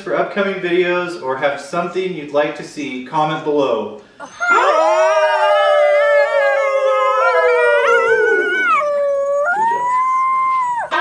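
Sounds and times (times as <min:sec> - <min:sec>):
man and children howling: 0:04.2 - 0:11.0.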